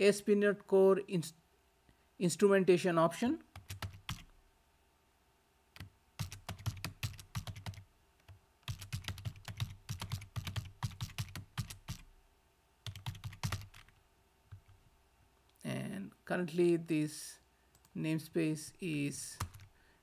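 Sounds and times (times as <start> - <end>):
computer keyboard typing: 3.5 - 4.3, 5.8 - 12.1, 12.8 - 14.8, 19.4 - 19.7.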